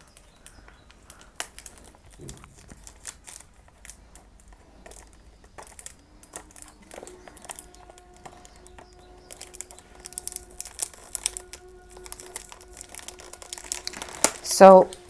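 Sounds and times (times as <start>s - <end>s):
thin plastic crinkling: 0.0s - 15.0s
fingernails scratching plastic wrap: 1.1s - 14.5s.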